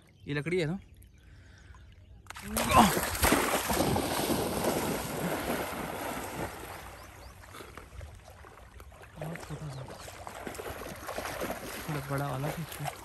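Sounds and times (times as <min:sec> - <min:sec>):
dog splashing into water: 0:02.4 - 0:07.1, 0:09.1 - 0:13.0.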